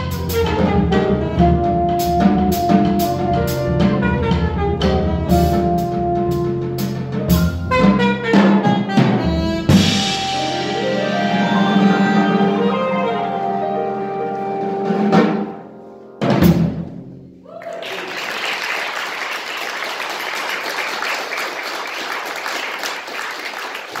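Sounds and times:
jazz quartet holding final chord: 0.0s - 16.1s
drum hit: 2.2s - 11.4s, 16.2s - 17.2s
audience applause: 17.4s - 24.0s.

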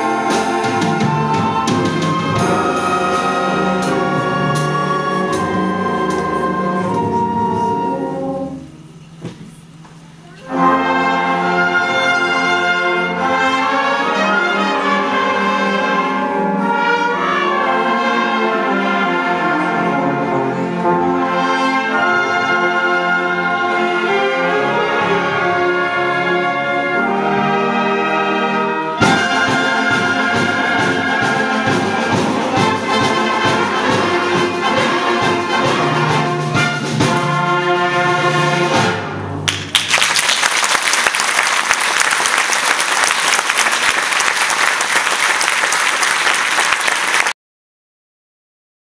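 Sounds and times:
concert wind band playing: 0.0s - 39.5s, 40.2s - 47.3s
audience applause: 39.5s - 47.4s.

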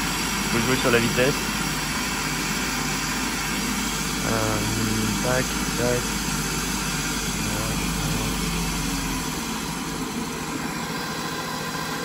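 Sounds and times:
electric motor humming: 3.5s - 11.1s.

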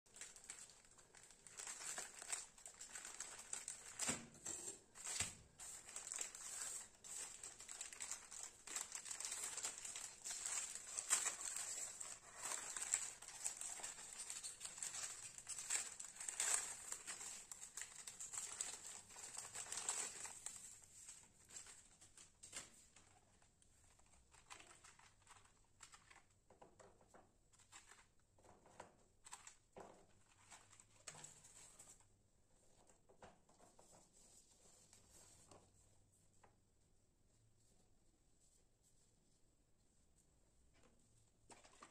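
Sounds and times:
plastic wrapper crinkling: 0.1s - 23.3s, 23.9s - 26.6s.

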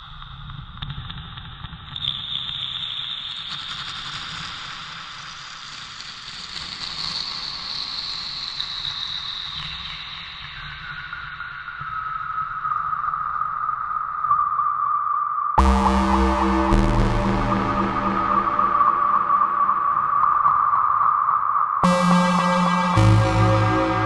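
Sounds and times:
high ringing synth tones: 15.6s - 20.8s, 21.8s - 24.0s.

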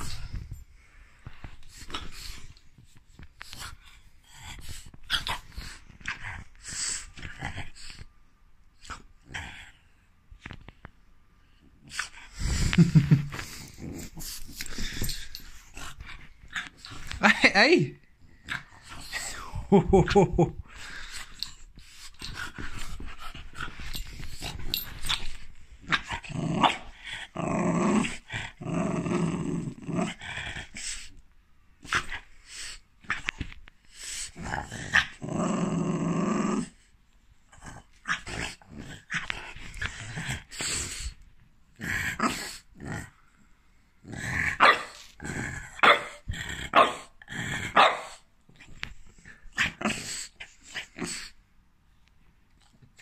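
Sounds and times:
dog growling and barking: 25.8s - 30.8s, 34.4s - 36.9s, 41.8s - 43.2s, 44.0s - 48.2s, 49.3s - 51.3s
dog growling: 25.9s - 31.1s, 34.3s - 36.9s.

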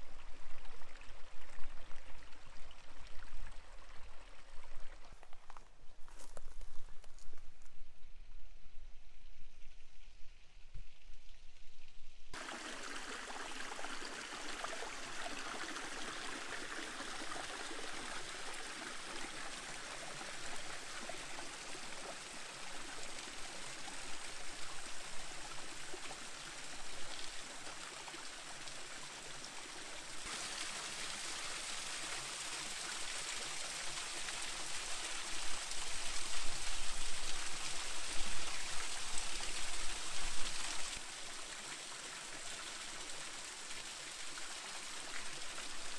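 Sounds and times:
small waterfall splashing: 12.4s - 45.9s.

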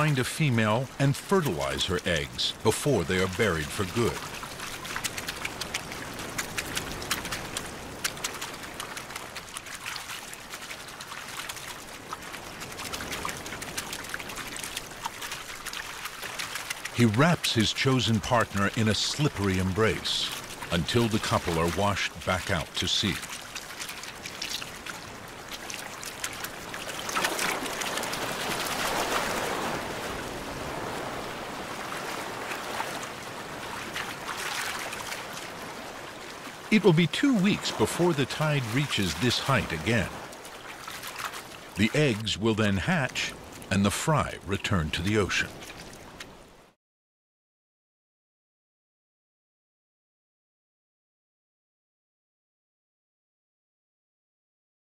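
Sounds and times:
water washing: 0.0s - 46.4s
fish splashing on wet sand: 3.0s - 42.0s.

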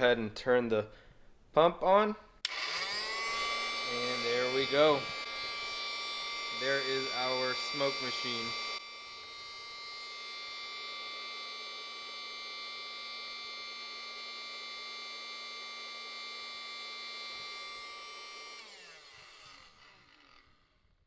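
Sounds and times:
pump winding down: 2.4s - 20.4s
electric air pump buzzing: 2.4s - 20.7s.

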